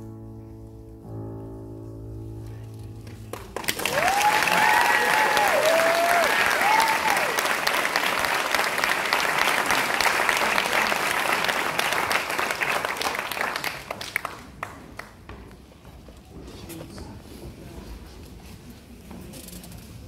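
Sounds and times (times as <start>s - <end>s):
audience applause: 3.3s - 15.2s.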